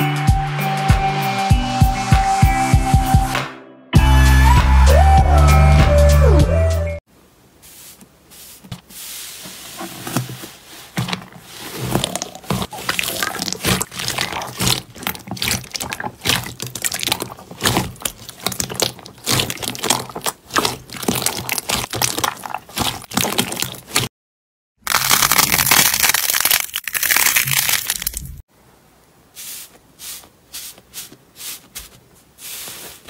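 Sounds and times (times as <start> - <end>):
slime crackling and popping: 11.8 - 24.1, 24.8 - 28.4.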